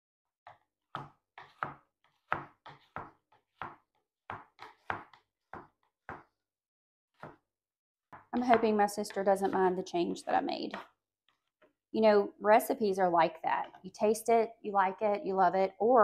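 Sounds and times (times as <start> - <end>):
knife chopping on cutting board: 0.9 - 6.3.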